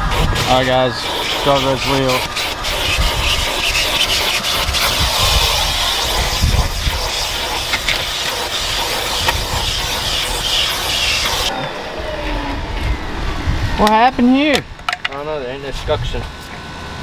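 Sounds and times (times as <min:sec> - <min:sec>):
shop vacuum hissing: 0:00.0 - 0:13.0.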